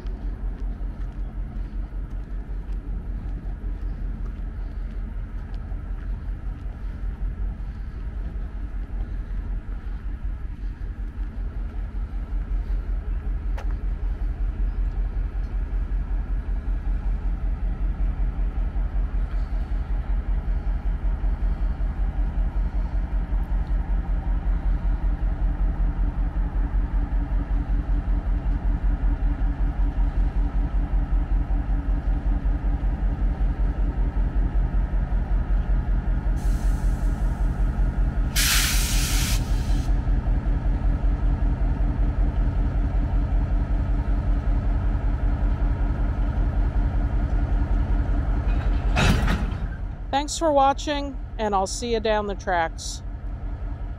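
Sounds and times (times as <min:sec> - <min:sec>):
diesel locomotive engines idling: 0:00.0 - 0:53.9
air brakes hissing: 0:36.4 - 0:40.0.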